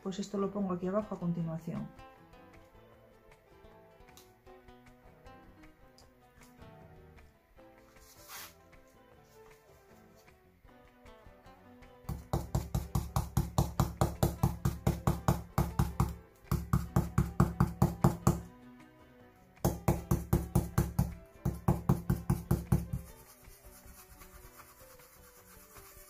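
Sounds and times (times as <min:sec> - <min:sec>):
stencil brush knocking: 0:12.1 - 0:18.5, 0:19.6 - 0:26.0.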